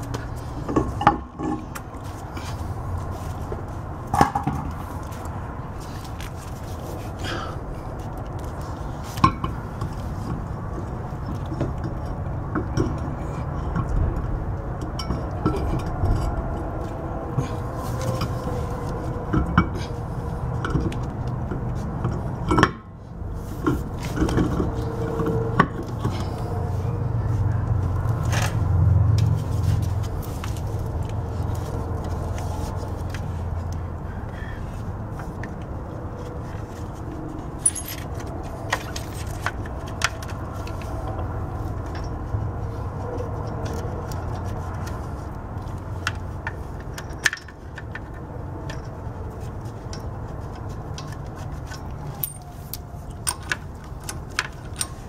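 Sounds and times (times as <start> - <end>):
metal wheel knocks and clinks: 37.6 - 39.5, 52.1 - 52.6, 53.2 - 55.0.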